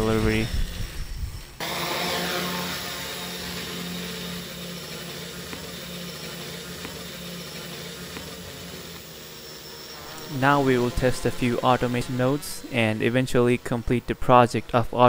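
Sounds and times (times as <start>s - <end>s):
quadcopter motors buzzing: 0.0s - 15.0s.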